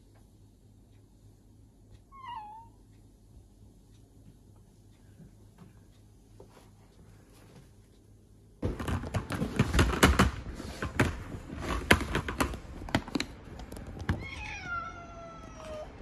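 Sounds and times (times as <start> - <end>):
cat meowing: 2.1 - 2.8, 14.2 - 16.0
knocking in plastic pet carrier: 8.6 - 13.2.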